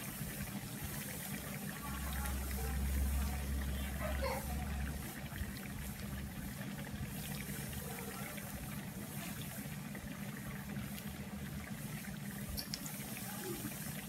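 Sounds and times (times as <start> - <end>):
low steady hum: 0.0 - 14.0
food sizzling in hot oil: 10.8 - 14.0.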